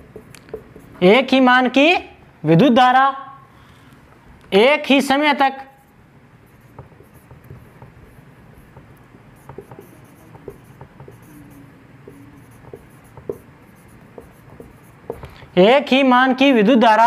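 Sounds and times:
marker tip tapping: 0.0s - 1.0s, 6.6s - 15.4s
marker scratching on whiteboard: 0.0s - 1.4s, 5.6s - 15.5s.

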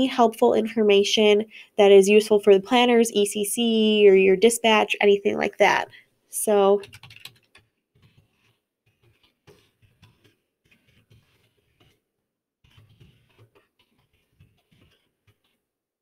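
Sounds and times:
typing on computer keyboard: 6.8s - 12.0s, 12.6s - 15.6s.

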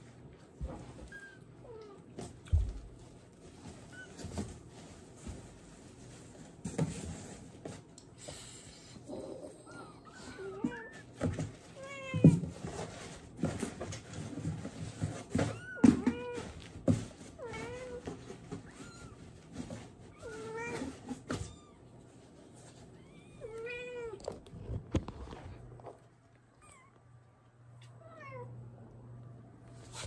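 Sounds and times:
cats meowing: 9.4s - 12.6s, 15.3s - 19.4s, 20.0s - 22.0s, 22.9s - 24.3s.

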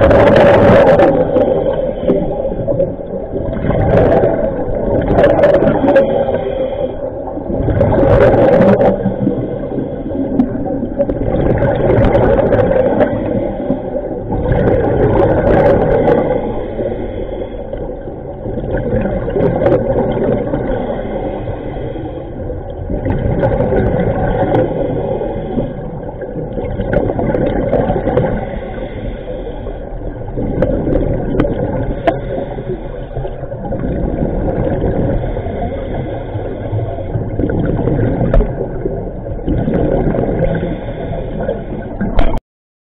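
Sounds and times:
bubbling exhale: 0.0s - 42.4s
diver breathing through regulator: 4.0s - 10.6s, 15.4s - 18.0s, 20.6s - 22.7s, 24.4s - 26.2s, 28.3s - 31.0s, 31.8s - 33.4s, 34.8s - 37.2s, 40.2s - 42.0s.

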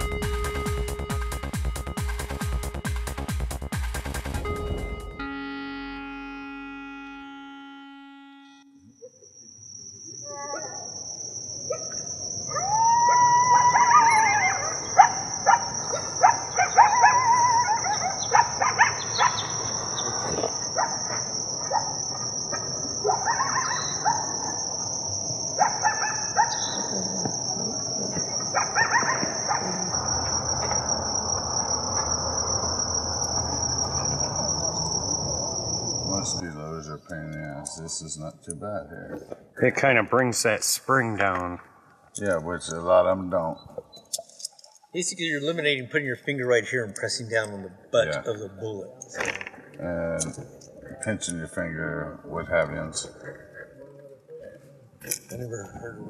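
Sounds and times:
high-pitched insect buzz: 0.0s - 36.8s
bird calls and chirps: 14.0s - 24.6s, 25.8s - 29.6s.

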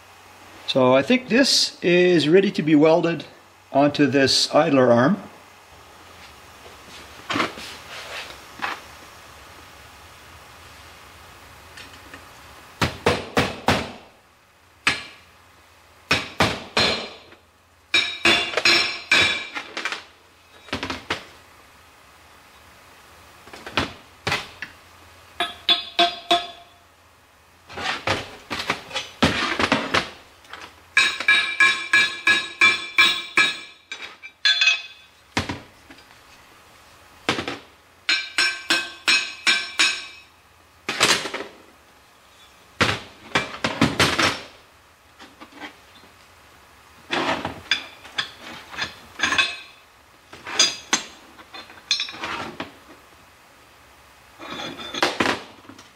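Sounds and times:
hammer tapping on metal: 25.4s - 26.8s, 31.0s - 33.8s, 38.1s - 40.2s.

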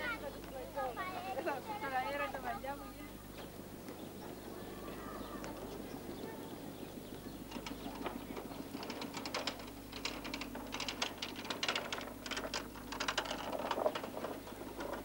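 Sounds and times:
cart wheels rattling over paving: 5.5s - 15.0s.

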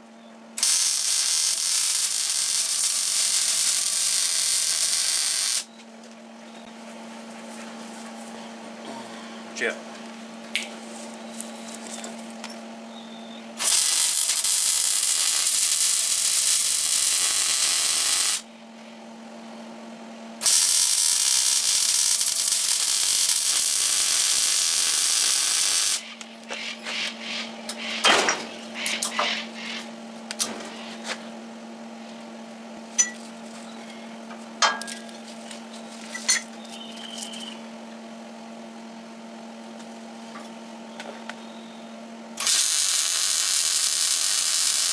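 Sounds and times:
steady low hum: 0.0s - 42.4s
mig welder welding: 0.6s - 5.7s, 13.6s - 18.5s, 20.4s - 30.8s, 42.4s - 44.9s.

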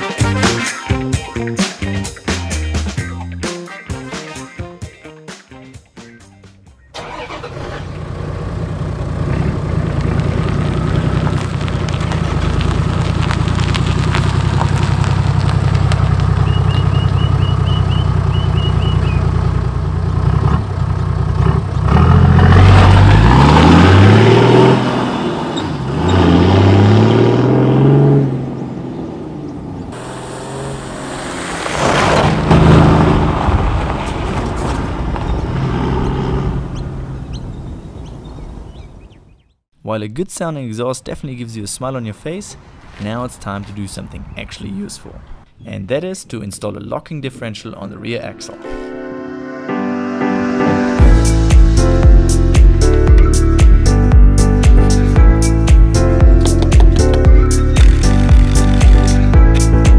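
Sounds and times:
car engine idling: 7.0s - 23.2s
engine revving: 7.0s - 38.0s
car accelerating away: 7.0s - 39.0s.

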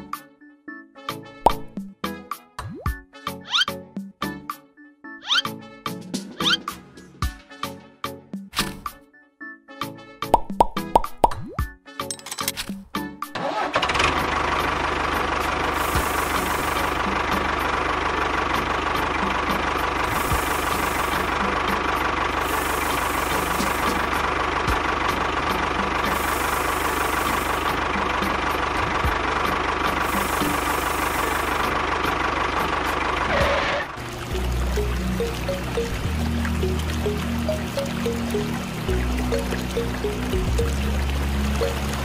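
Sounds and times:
motor running with whine: 15.7s - 17.5s, 19.9s - 24.8s, 25.5s - 32.2s, 33.2s - 42.0s.

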